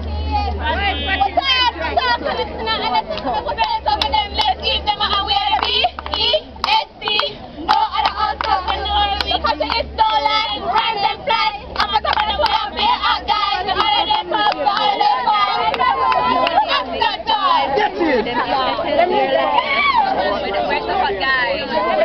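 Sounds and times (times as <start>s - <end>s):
group chanting a cheer: 0.7s - 17.8s
sharp hand claps: 3.2s - 9.9s.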